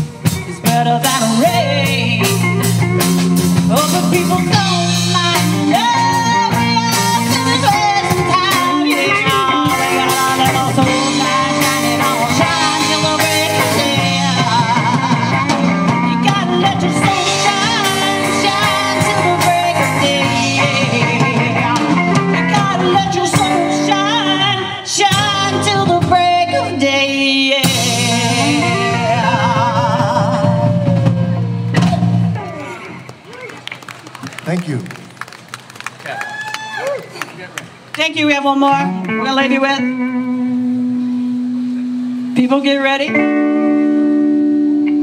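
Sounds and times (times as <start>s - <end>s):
drum kit: 0.0s - 26.5s, 27.6s - 33.2s
bass guitar: 0.0s - 34.6s, 36.1s - 45.0s.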